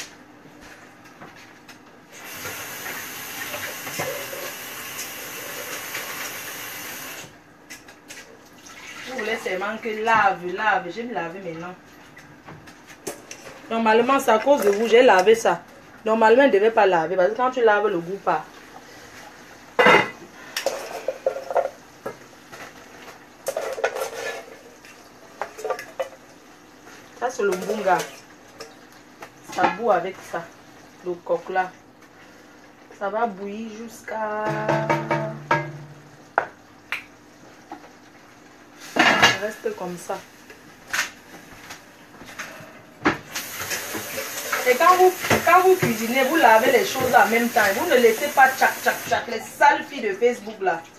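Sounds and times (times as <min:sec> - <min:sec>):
water running into sink: 0:02.2 - 0:07.4, 0:08.5 - 0:09.8, 0:43.3 - 0:49.5
metal pot knocking and clattering: 0:34.5 - 0:36.1.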